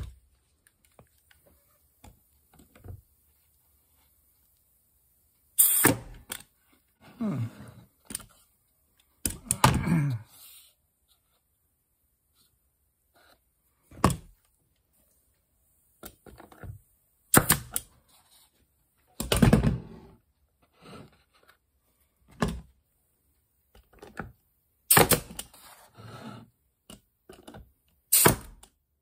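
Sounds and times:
pneumatic stapler firing: 5.6 - 6.3, 17.3 - 17.8, 24.9 - 25.5, 28.1 - 28.7.

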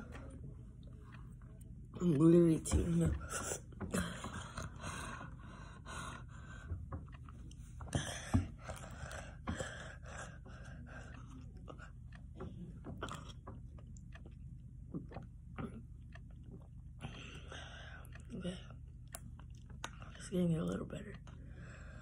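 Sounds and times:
person chewing and smacking: 6.1 - 20.2.

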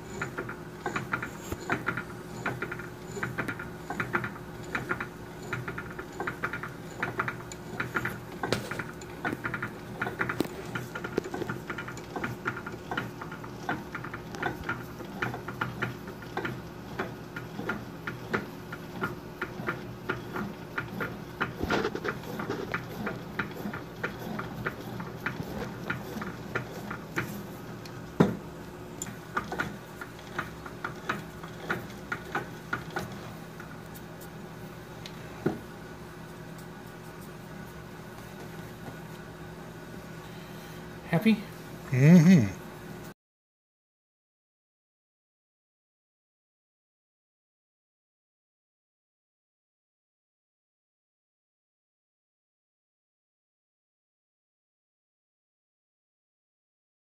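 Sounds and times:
milling machine motor hum: 0.0 - 41.0.

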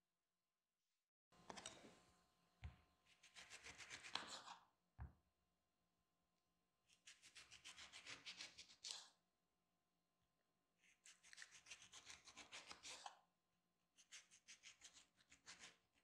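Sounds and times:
knife sawing through orange: 7.0 - 9.1, 10.8 - 13.2, 14.0 - 15.8.

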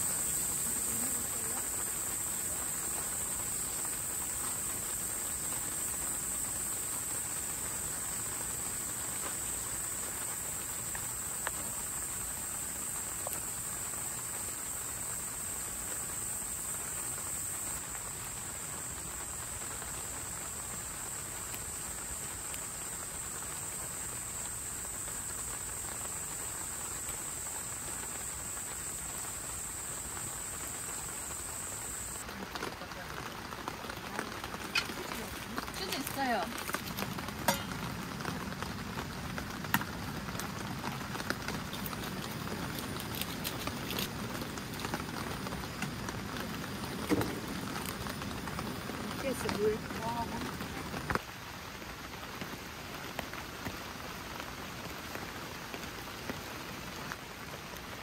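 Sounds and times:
insects trilling: 0.0 - 57.2
background hiss: 0.0 - 58.0.

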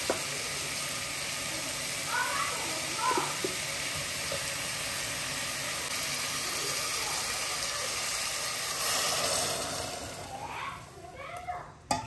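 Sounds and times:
steady hissing noise: 0.0 - 12.0.

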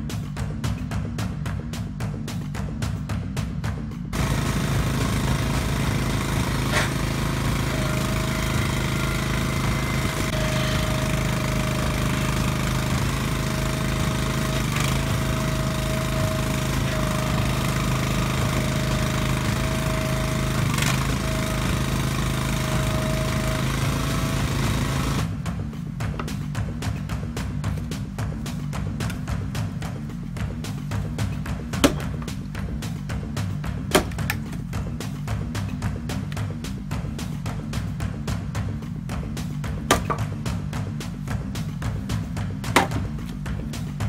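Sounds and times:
small engine running: 3.6 - 44.0
hydraulic whine: 4.2 - 25.4
sharp knocks: 31.4 - 32.4, 33.8 - 34.5, 39.8 - 40.5, 42.6 - 43.3.

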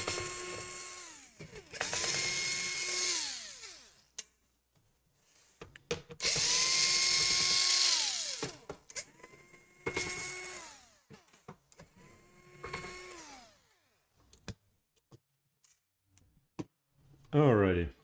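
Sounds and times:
electric screwdriver whine: 0.0 - 4.1, 6.2 - 13.9.

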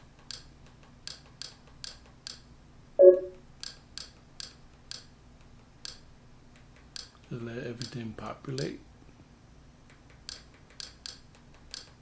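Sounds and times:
brief louder tone: 3.0 - 3.4
short sharp menu clicks: 3.0 - 3.4.

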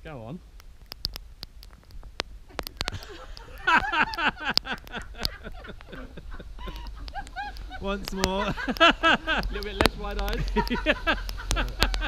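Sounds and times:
steady low rumble: 0.0 - 12.0
sharp clicks: 0.5 - 12.0
man and woman laughing: 2.8 - 12.0.

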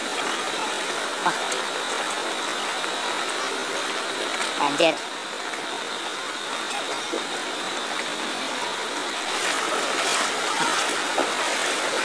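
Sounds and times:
flood water rushing: 0.0 - 12.0.

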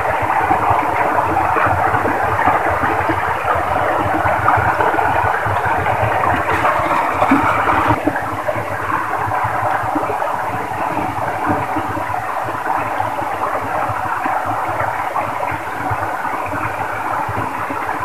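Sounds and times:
water rushing over rocks: 4.6 - 8.0.

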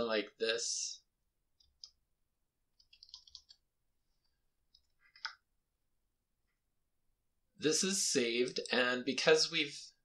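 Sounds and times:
faint keyboard typing: 1.6 - 2.0, 2.7 - 5.5.

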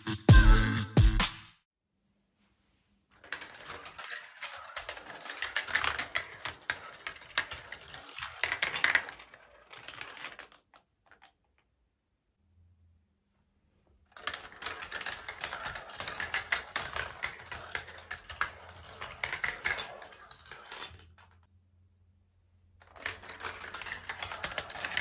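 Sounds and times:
marbles rolling down plastic run: 3.2 - 11.6, 14.1 - 21.5, 22.8 - 25.0.

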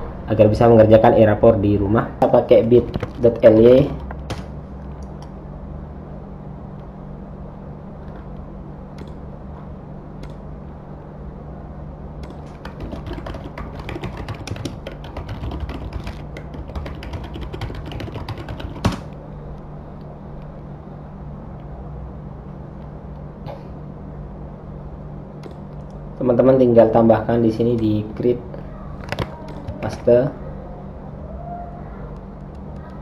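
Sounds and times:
low steady hum: 0.0 - 33.0
keyboard typing: 2.6 - 5.3, 9.0 - 9.2, 10.2 - 10.4, 12.2 - 19.2, 25.4 - 26.0, 29.0 - 30.1.

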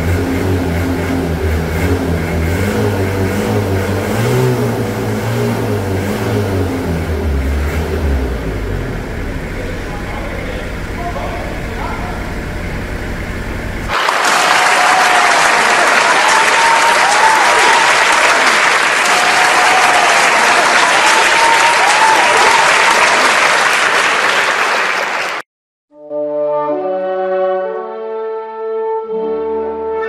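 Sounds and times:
diesel engine idling: 0.0 - 13.9
crowd applauding loudly: 13.9 - 25.5
brass instruments playing: 26.0 - 30.0.

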